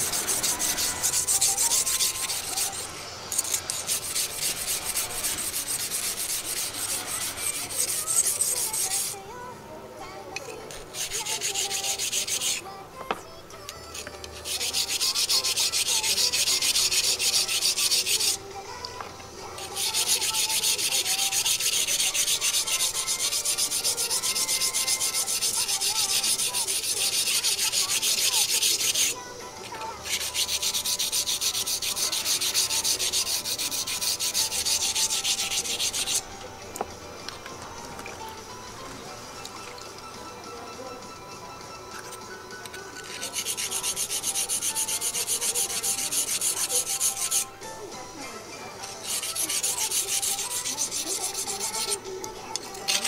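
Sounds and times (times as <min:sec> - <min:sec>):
knife grinding on whetstone: 0:00.0 - 0:09.2, 0:10.7 - 0:12.7, 0:13.9 - 0:18.4, 0:19.6 - 0:36.3, 0:43.0 - 0:47.5, 0:48.8 - 0:52.0, 0:52.7 - 0:53.0.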